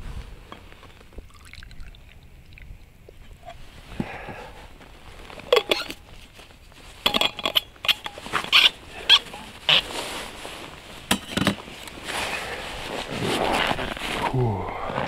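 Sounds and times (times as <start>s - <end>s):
jacket fabric rustling: 8.0s - 14.4s.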